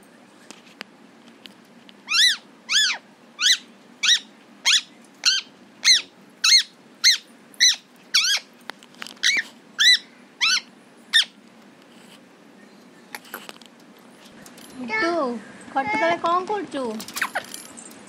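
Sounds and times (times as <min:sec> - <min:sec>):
parrot squawking: 0:02.0 - 0:08.5, 0:09.2 - 0:11.4.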